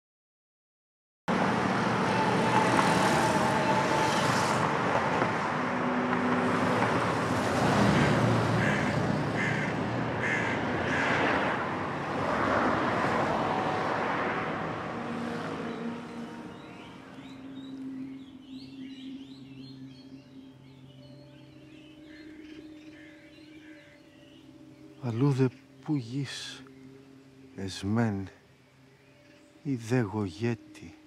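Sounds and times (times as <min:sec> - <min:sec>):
cars and scooters passing: 0:01.3 - 0:25.2.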